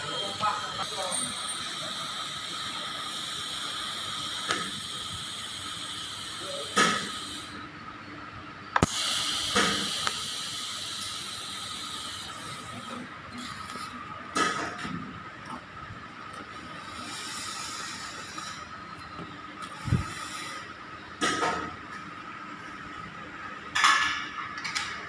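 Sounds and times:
welding arc hissing and buzzing: 0:00.0 - 0:07.8, 0:08.8 - 0:15.1, 0:15.8 - 0:21.4
welding arc restart click: 0:04.4 - 0:04.8, 0:08.8 - 0:10.3.

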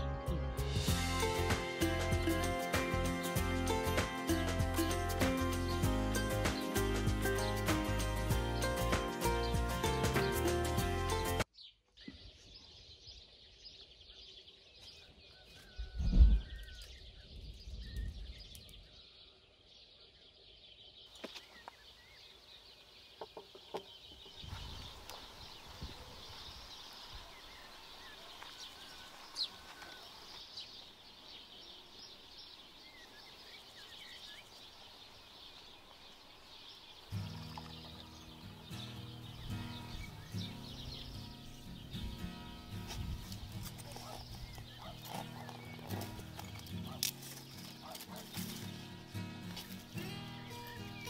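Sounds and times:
small birds chirping: 0:01.2 - 0:51.0.

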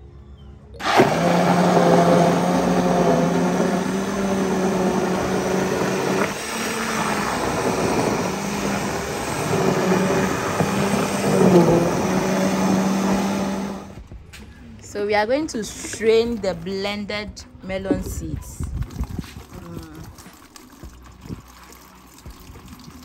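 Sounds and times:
electric blender running: 0:00.8 - 0:14.0.

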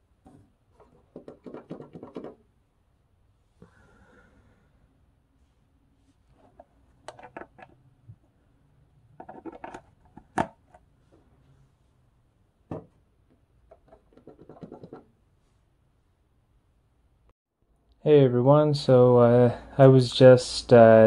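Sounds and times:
fingers rubbing on phone: 0:13.7 - 0:15.1.

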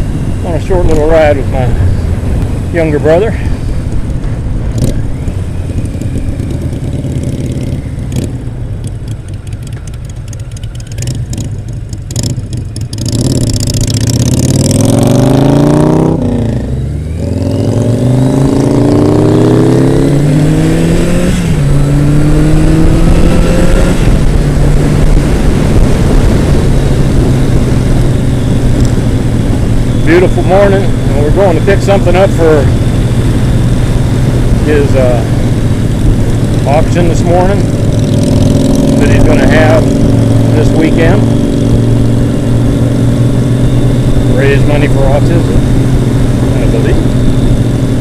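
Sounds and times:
motorcycle engine running: 0:00.0 - 0:48.0
wind rushing: 0:14.1 - 0:48.0.

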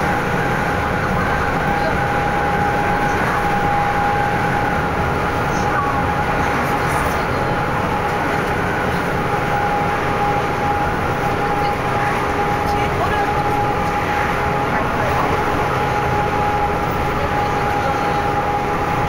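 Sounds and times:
vehicle road and wind noise: 0:00.0 - 0:19.0.

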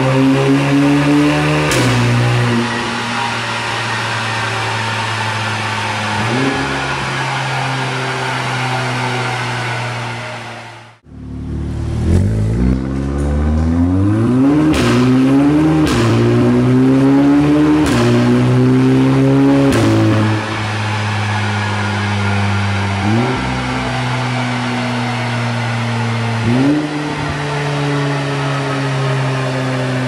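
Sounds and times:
car engine accelerating: 0:00.0 - 0:30.0.

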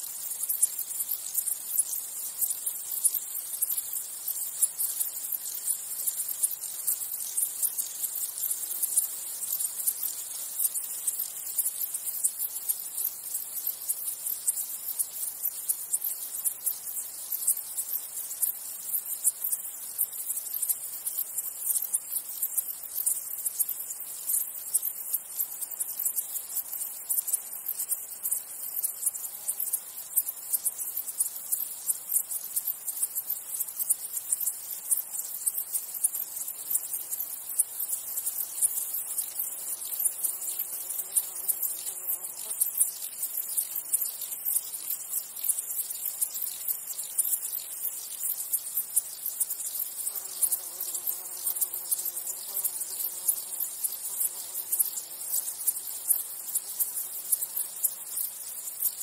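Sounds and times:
insects chirping: 0:00.0 - 0:59.0
flying insect buzzing: 0:28.2 - 0:30.8, 0:36.3 - 0:44.0, 0:49.3 - 0:57.6.

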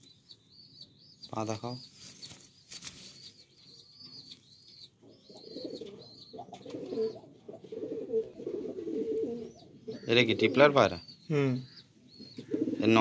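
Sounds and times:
bird chirping high: 0:00.0 - 0:13.0
rustling: 0:01.9 - 0:04.5
pigeons cooing: 0:03.3 - 0:13.0.

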